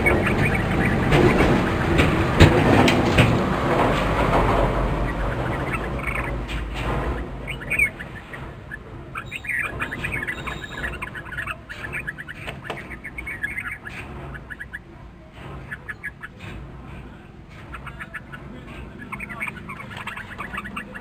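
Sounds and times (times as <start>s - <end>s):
low rumble: 0.0s - 12.0s
birds chattering calls: 0.0s - 21.0s.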